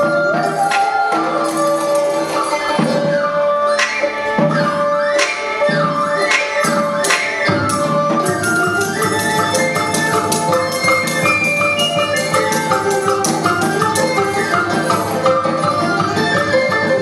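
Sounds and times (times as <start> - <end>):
steady drum beat: 6.3 - 17.0.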